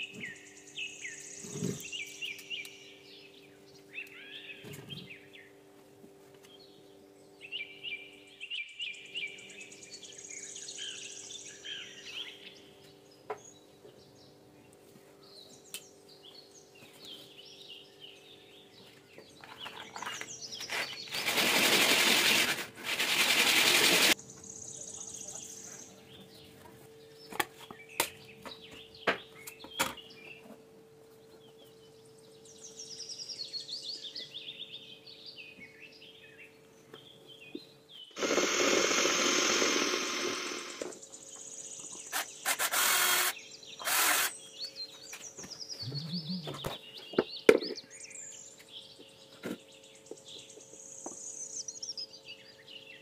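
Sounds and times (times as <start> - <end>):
birds chirping: 0.0 - 5.7, 6.4 - 21.5, 24.1 - 53.0
electric drill boring plastic: 21.1 - 24.2, 38.2 - 40.9, 42.1 - 44.3.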